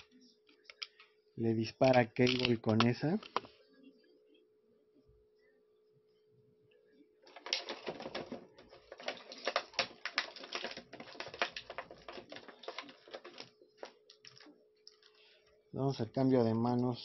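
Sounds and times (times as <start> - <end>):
faint steady hum: 0.0 - 17.0
stiff plastic packaging crackling: 7.3 - 15.2.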